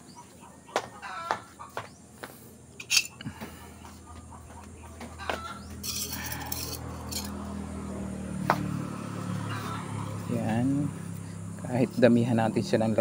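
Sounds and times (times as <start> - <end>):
vehicle engine hum: 1.8 - 13.0
metal spoon scraping on tiles: 2.8 - 3.2, 5.8 - 7.4.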